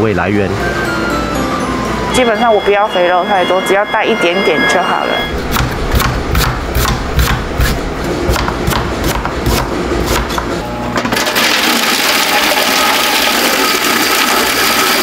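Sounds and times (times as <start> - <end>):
electric chopping machine running: 5.3 - 15.0
cleaver chopping on wooden board: 6.4 - 10.6.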